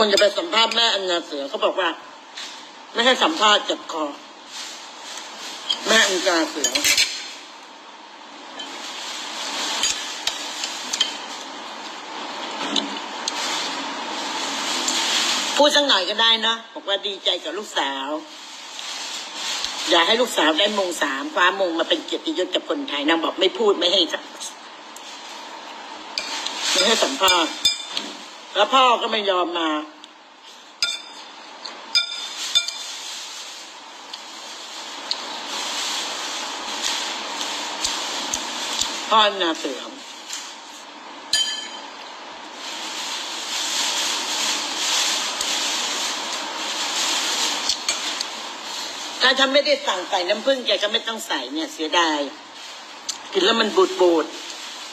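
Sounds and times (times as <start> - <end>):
steady hiss: 0.0 - 54.9
metal spoon clinking on plate: 26.2 - 28.0, 30.8 - 31.3, 32.0 - 32.9, 41.4 - 41.9
metal spoon scraping a plate: 32.0 - 32.9.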